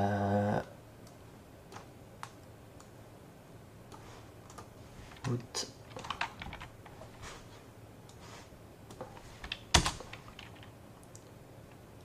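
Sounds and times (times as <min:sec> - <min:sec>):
keyboard typing: 0:03.9 - 0:07.0, 0:08.9 - 0:11.3.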